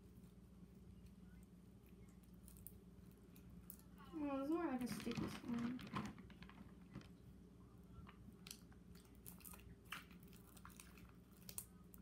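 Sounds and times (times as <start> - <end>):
small crackles: 0.9 - 12.0
slime squelching: 8.0 - 12.0.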